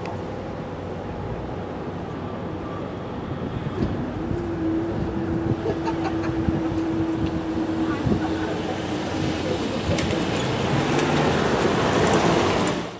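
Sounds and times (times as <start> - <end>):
road traffic engines and tyres: 0.0 - 12.9
car passing close: 3.2 - 12.9.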